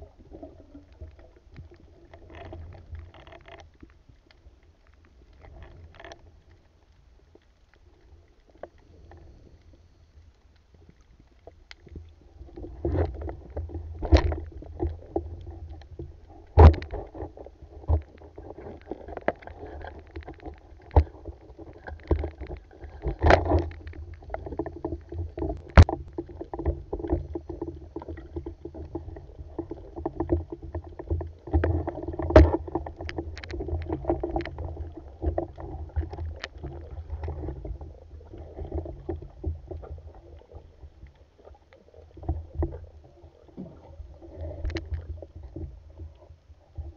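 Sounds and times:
muffled underwater rumble: 0.0s - 46.9s
gear clicks and knocks: 2.1s - 4.0s, 5.4s - 6.3s, 12.8s - 28.5s.

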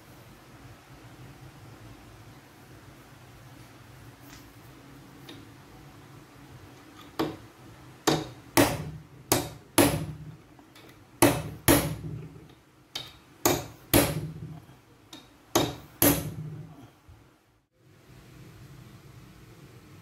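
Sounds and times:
hammer tapping metal punch: 7.0s - 7.4s, 8.0s - 16.8s.

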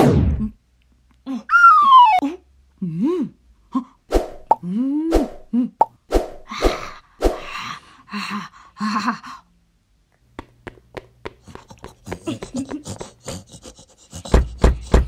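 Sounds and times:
breathy vocal grunts: 11.5s - 15.0s.

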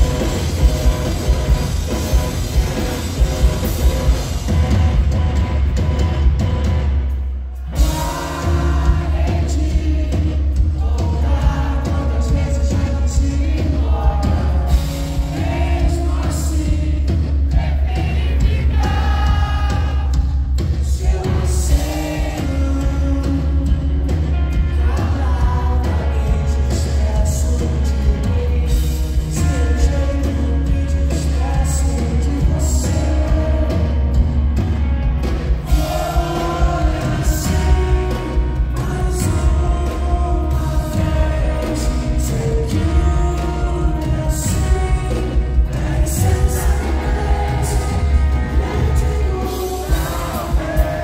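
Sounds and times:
rock band playing live: 0.0s - 51.0s
man singing into microphone: 7.8s - 17.1s, 20.8s - 34.2s, 35.7s - 51.0s.

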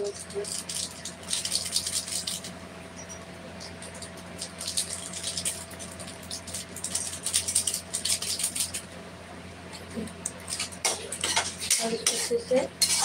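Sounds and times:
steady low hum: 0.0s - 13.0s
metal spoon scraping steel pan: 10.8s - 13.0s.

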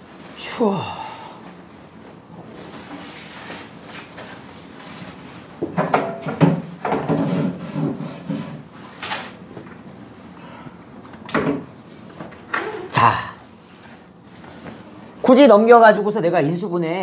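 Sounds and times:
man murmuring: 0.5s - 1.3s, 12.8s - 13.5s.

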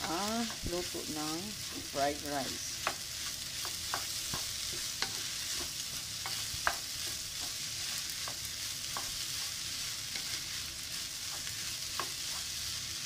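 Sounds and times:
spatula tapping pan: 0.0s - 2.0s, 2.7s - 10.5s, 11.2s - 12.6s
rice sizzling in frying pan: 0.0s - 13.0s.

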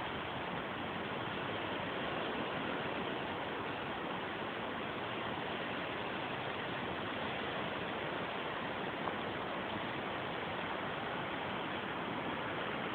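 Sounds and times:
rain: 0.0s - 12.9s
wind: 0.0s - 12.9s.

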